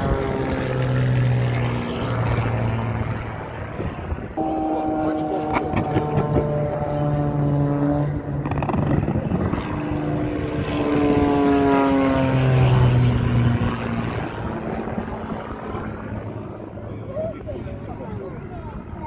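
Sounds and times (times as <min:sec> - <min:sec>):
propeller plane engine passing by: 0:00.0 - 0:19.0.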